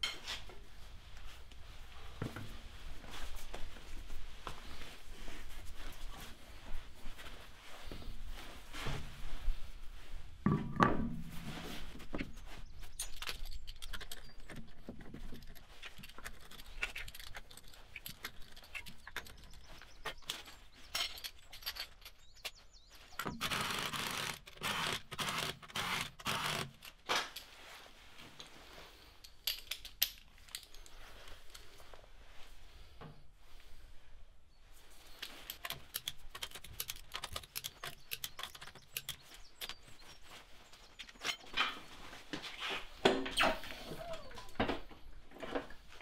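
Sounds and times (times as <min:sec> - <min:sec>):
socket wrench clicks and scrapes: 0:35.2 - 0:40.0.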